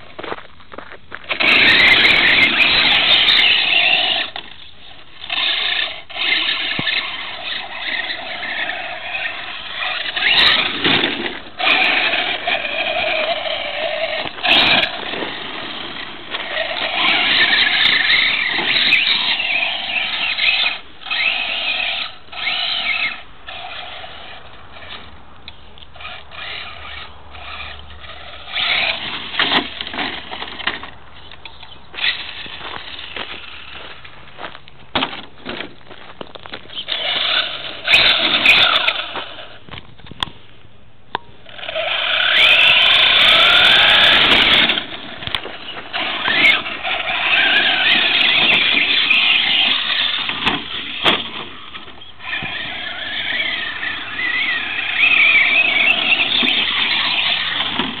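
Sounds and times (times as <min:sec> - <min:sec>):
electric motor whining: 0:01.3 - 0:25.1, 0:36.7 - 0:39.6, 0:41.4 - 0:58.0.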